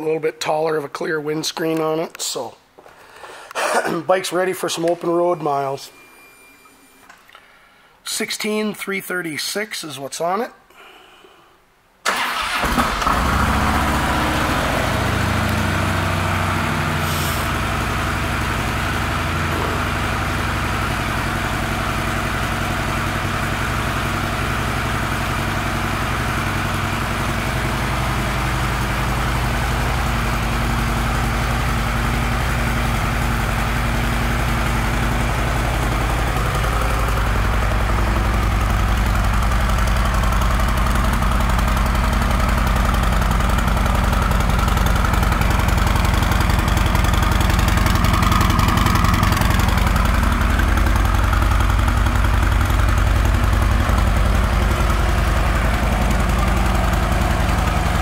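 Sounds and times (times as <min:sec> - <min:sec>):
motorcycle engine cranking and idling: 0:12.1 - 0:58.0.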